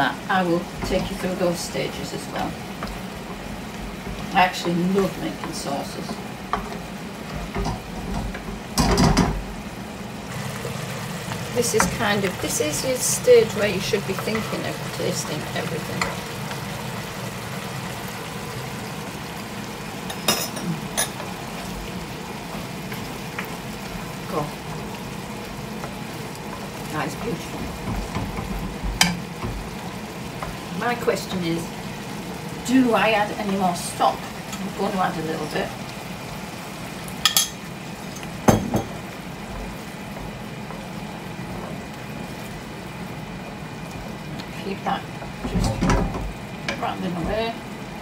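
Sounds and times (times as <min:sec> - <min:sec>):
sizzling and bubbling in pans: 0:00.0 - 0:48.0
spoon clinking against pan: 0:37.2 - 0:37.6.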